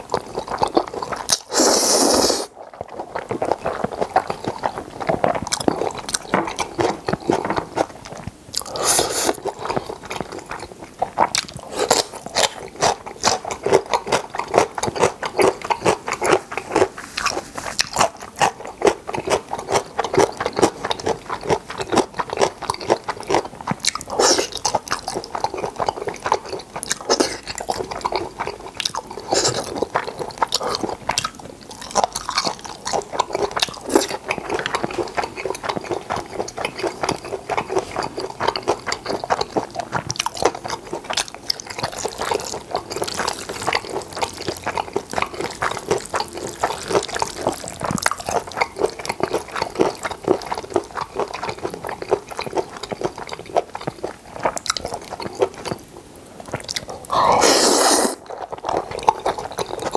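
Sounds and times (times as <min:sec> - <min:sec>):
wet chewing with lip smacks: 0:00.0 - 0:59.9
slurping noodles: 0:00.4 - 0:02.8, 0:08.6 - 0:10.4, 0:11.2 - 0:20.7, 0:24.1 - 0:25.9, 0:29.0 - 0:31.0, 0:56.6 - 0:59.9.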